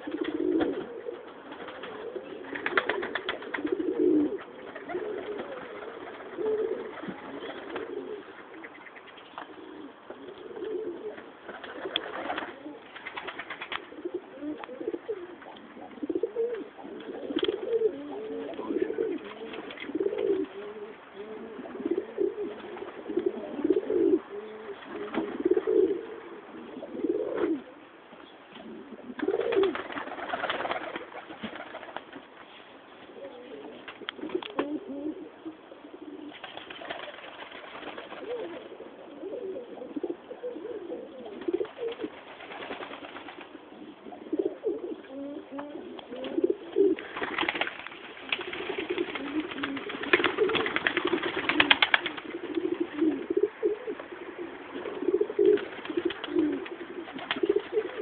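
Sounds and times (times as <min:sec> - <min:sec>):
pigeons cooing: 0:00.0 - 0:58.0.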